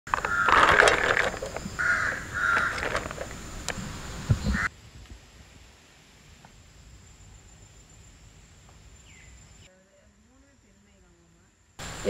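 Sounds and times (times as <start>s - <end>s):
birds calling harshly: 0.1s - 4.7s.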